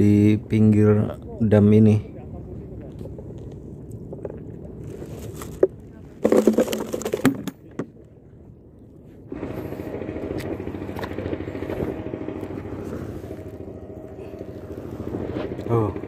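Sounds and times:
motor engine running: 0:09.2 - 0:16.0.

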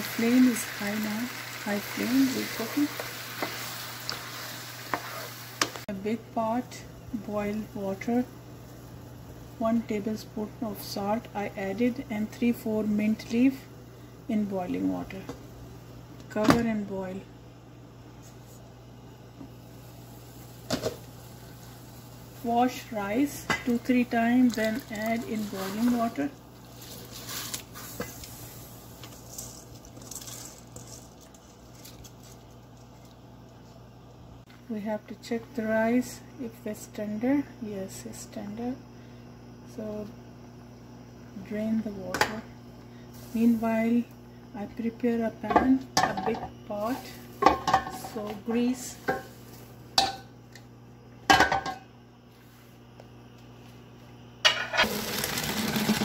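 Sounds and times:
rice splashing into boiling water: 0:54.8 - 0:56.0.

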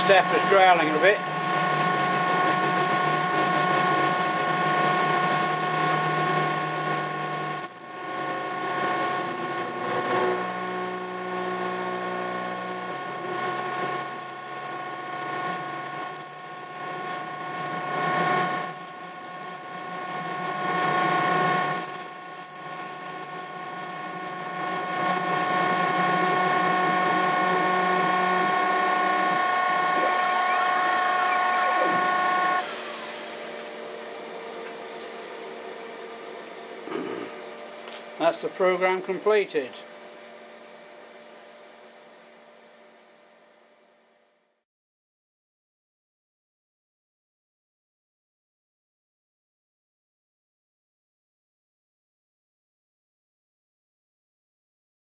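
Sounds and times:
motor growling: 0:00.0 - 0:12.3, 0:24.0 - 0:34.5, 0:35.7 - 0:37.6
stepper motors whining: 0:00.0 - 0:41.3.

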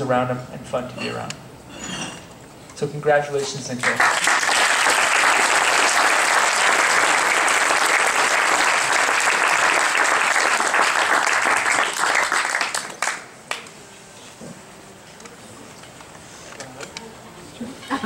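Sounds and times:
audience applauding: 0:03.8 - 0:13.6.

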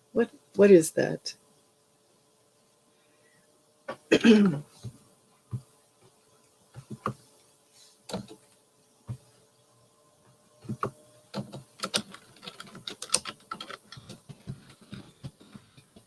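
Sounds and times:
keyboard typing: 0:08.1 - 0:08.4, 0:10.6 - 0:16.0.

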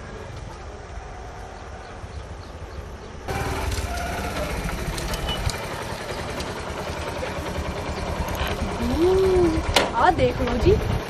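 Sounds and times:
small motorcycle engine puttering: 0:03.3 - 0:11.0.

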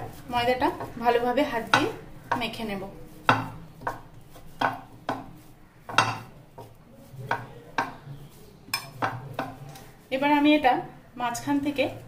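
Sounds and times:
dough being kneaded by hand: 0:00.0 - 0:12.0
glass dish knocking on counter: 0:03.3 - 0:04.0, 0:05.9 - 0:06.3.

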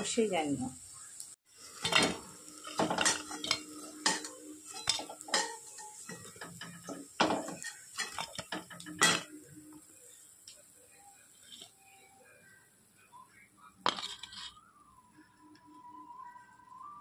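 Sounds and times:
metal pan clinking and scraping: 0:01.7 - 0:09.5, 0:13.9 - 0:14.6.

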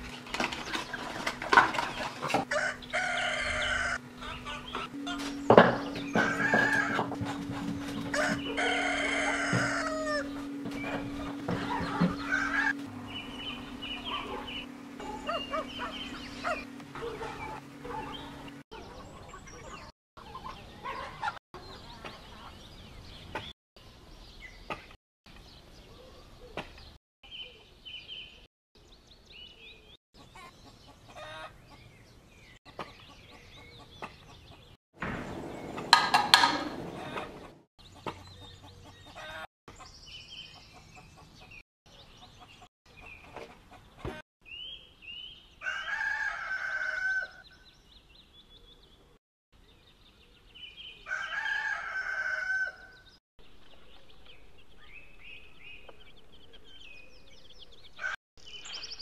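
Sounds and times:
chickens clucking: 0:00.2 - 0:22.5, 0:30.2 - 0:31.8, 0:32.7 - 0:39.8, 0:42.2 - 0:44.2.

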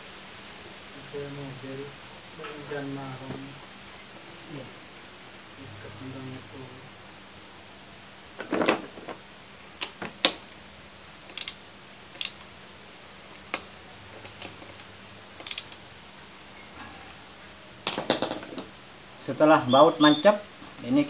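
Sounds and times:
ratchet wrench clicking on metal: 0:11.3 - 0:11.6, 0:12.2 - 0:12.4, 0:15.4 - 0:15.8.

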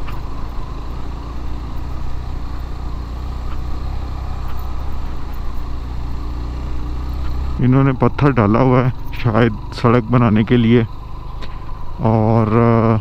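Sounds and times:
motorcycle engine running: 0:00.0 - 0:13.0
faint clicks: 0:03.2 - 0:06.3, 0:07.1 - 0:07.6, 0:10.9 - 0:12.6.

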